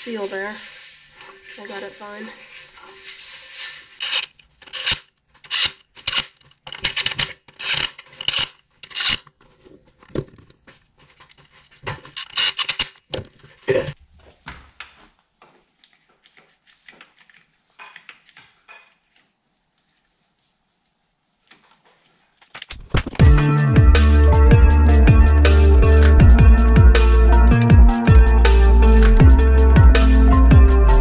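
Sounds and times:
hand tools clicking and rattling: 4.0s - 9.3s.

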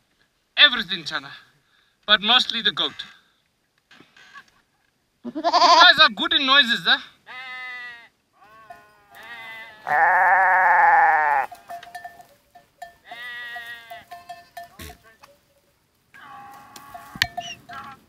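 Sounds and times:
goats bleating: 5.2s - 6.0s, 7.3s - 11.8s, 13.0s - 15.1s, 16.2s - 18.0s.

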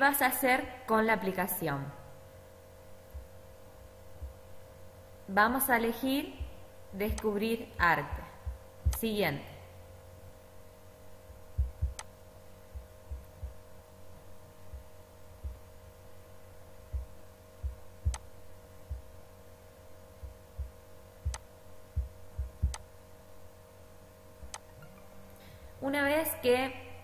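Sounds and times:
electrical hum: 0.0s - 27.0s
soft low thumps: 3.1s - 4.6s, 6.3s - 9.1s, 11.0s - 23.0s
computer mouse clicks: 11.9s - 12.1s, 24.4s - 24.7s.

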